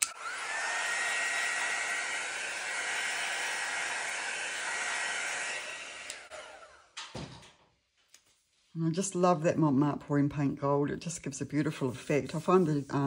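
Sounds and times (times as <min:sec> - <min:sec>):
heat tool blowing hot air: 0:00.0 - 0:06.8.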